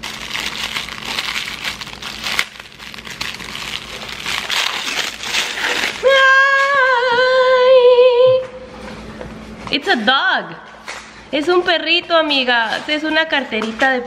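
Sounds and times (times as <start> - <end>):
plastic and paper crinkling: 0.0 - 6.8
woman singing a long note: 6.0 - 8.6.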